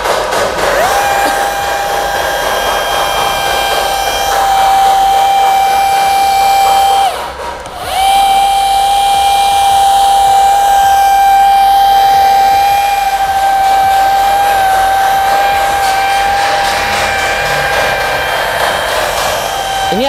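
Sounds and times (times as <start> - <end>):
electric polisher whining: 0.0 - 20.0.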